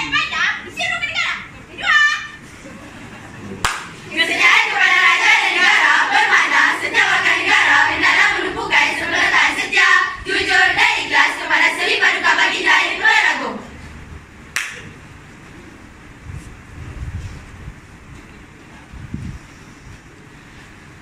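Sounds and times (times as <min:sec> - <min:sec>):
hand claps: 0:03.6 - 0:04.0, 0:14.5 - 0:14.9
girls singing in unison: 0:04.1 - 0:13.7.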